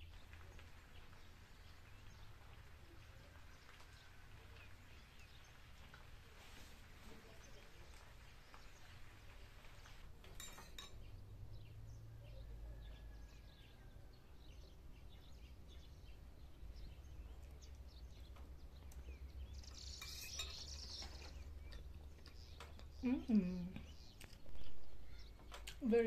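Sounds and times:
metal fork scraping a plate: 19.9 - 20.7.

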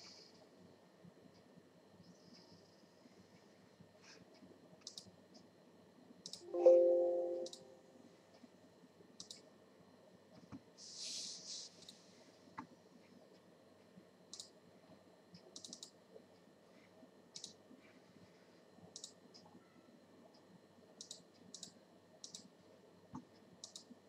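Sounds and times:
computer mouse clicks: 4.4 - 5.5, 6.2 - 6.5, 9.2 - 9.5, 14.3 - 14.6, 15.3 - 16.0, 17.3 - 17.6, 18.9 - 19.5, 21.0 - 22.5, 23.1 - 24.0.

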